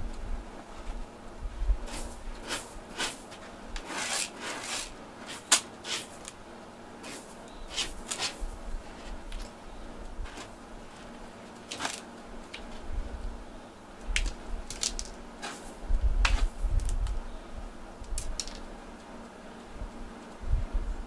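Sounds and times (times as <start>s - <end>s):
cat scratching in litter: 1.8s - 6.4s, 7.0s - 9.5s, 10.2s - 12.1s, 14.2s - 17.0s.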